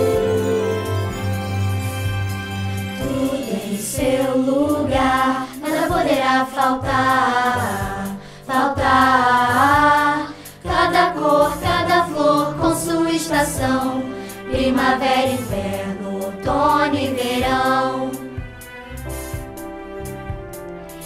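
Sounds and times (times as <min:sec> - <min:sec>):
backing music: 0:00.0 - 0:21.0
girls singing together: 0:03.0 - 0:18.3.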